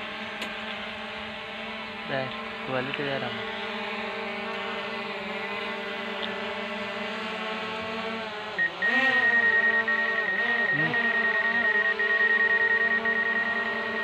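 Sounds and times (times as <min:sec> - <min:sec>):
drone propellers whining: 0:00.0 - 0:14.0
rapidly pulsing electronic tone: 0:08.6 - 0:14.0.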